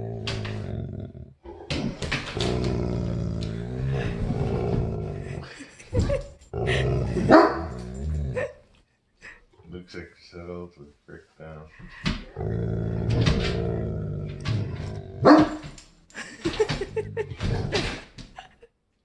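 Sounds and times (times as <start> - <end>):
dog growling low: 0.0 - 8.6, 12.2 - 15.4.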